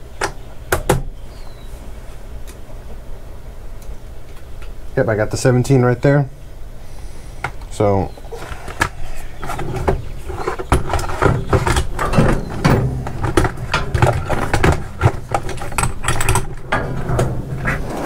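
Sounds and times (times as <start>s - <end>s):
tools clattering and clinking: 8.7s - 18.0s
metal drawers sliding: 9.4s - 18.0s.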